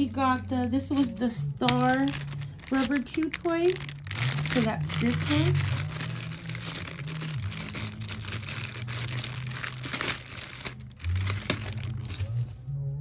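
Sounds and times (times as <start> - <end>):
plastic bag crinkling: 0.2 - 12.4.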